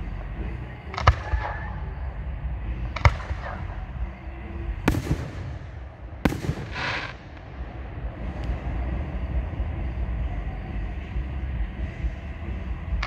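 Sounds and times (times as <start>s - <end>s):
steady low rumble: 0.0s - 13.0s
fireworks bursting: 0.8s - 10.2s.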